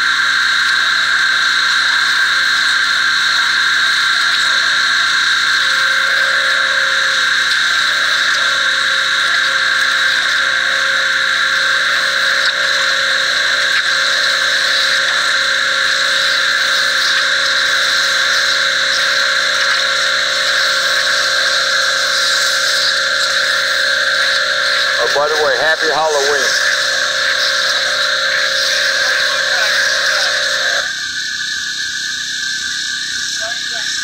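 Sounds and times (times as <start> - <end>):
pressure washer engine running: 0.0 - 30.9.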